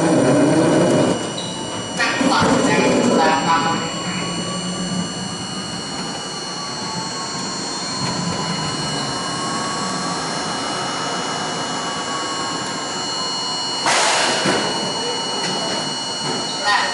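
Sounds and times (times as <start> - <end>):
steady high tones: 0.0 - 16.9
subway train wheels and brakes rumbling: 0.0 - 16.9
air hiss burst: 13.9 - 14.4.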